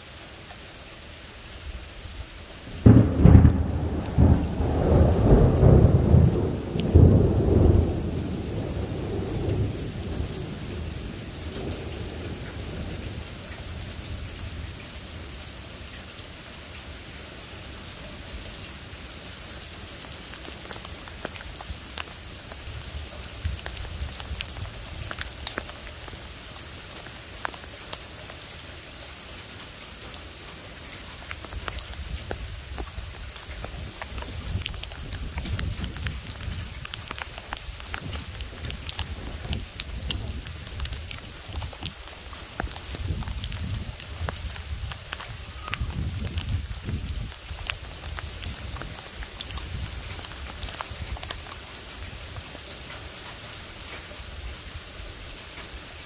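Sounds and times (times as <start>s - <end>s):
steady rain falling: 0.0s - 56.0s
thunder rumbling: 2.8s - 14.8s, 31.5s - 51.4s
water dripping: 18.3s - 54.8s.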